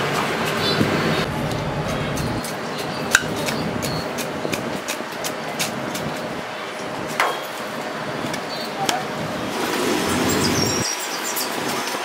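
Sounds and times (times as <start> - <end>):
steady background noise: 0.0 - 12.0.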